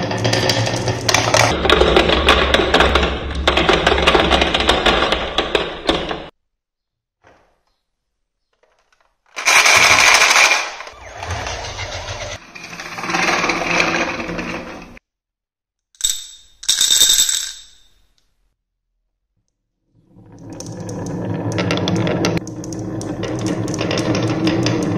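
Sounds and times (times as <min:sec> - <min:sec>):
marbles rattling in plastic toy: 0:09.4 - 0:10.9, 0:16.0 - 0:17.9
marbles clinking in a glass: 0:16.0 - 0:18.1.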